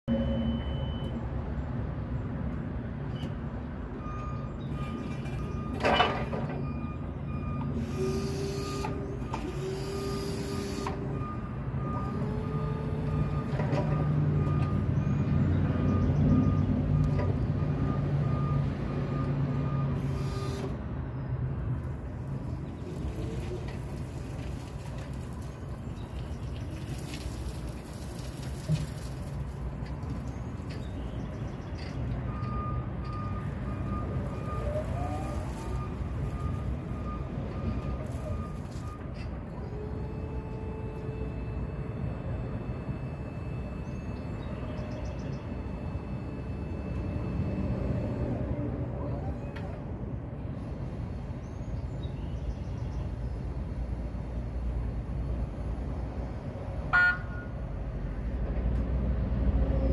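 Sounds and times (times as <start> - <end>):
reverse alarm beeps: 0.1 - 1.2, 4.0 - 14.9, 32.3 - 39.1, 40.0 - 48.5.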